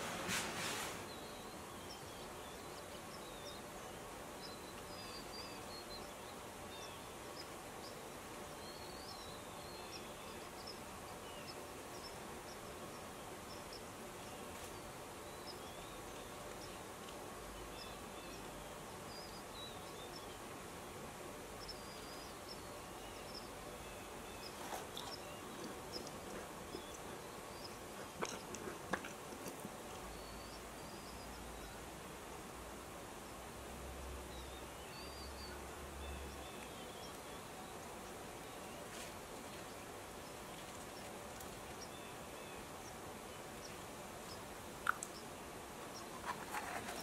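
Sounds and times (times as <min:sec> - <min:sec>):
steady background hiss: 0:00.0 - 0:47.0.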